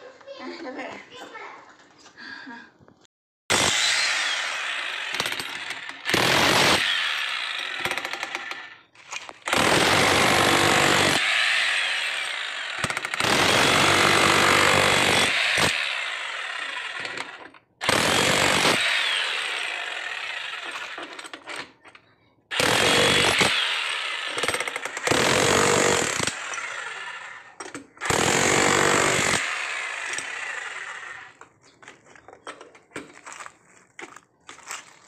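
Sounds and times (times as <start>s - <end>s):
jackhammer breaking concrete: 3.5s - 8.8s, 9.4s - 21.4s, 22.5s - 26.8s, 27.5s - 31.4s.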